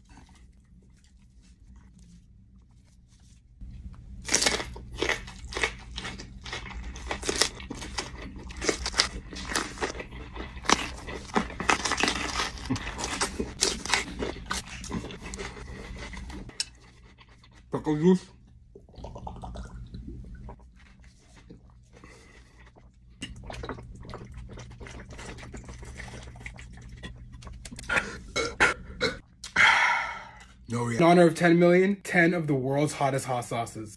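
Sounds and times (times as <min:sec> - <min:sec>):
crunching and chewing pepper: 0:00.0 - 0:28.4.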